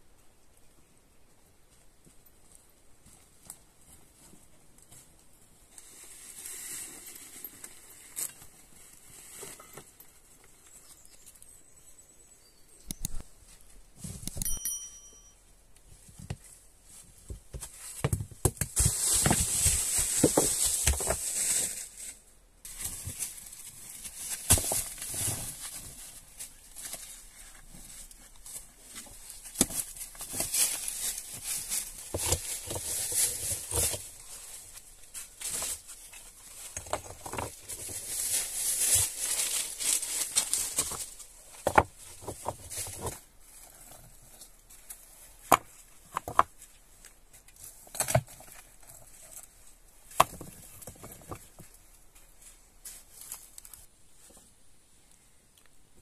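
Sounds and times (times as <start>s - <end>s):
dry leaves crunching and rustling: 18.7s - 36.8s, 37.5s - 45.4s.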